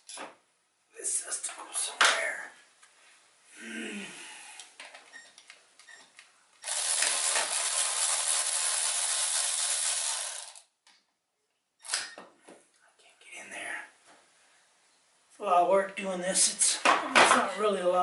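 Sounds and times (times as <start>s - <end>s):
electric ratchet rattling: 6.6s - 10.7s.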